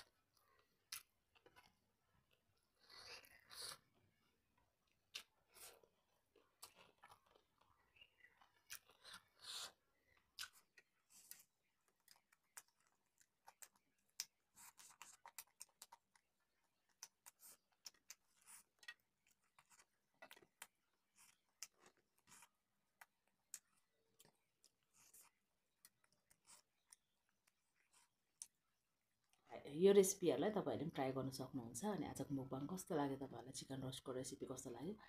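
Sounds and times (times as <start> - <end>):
chewing with wet mouth clicks: 0.0 - 29.5.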